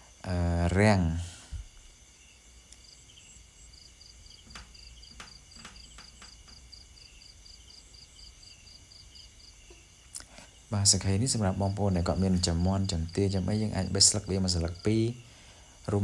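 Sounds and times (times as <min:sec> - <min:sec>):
insect high trill: 0:00.0 - 0:16.0
insect repeated chirp: 0:00.0 - 0:16.0
faint clicks: 0:04.4 - 0:06.7.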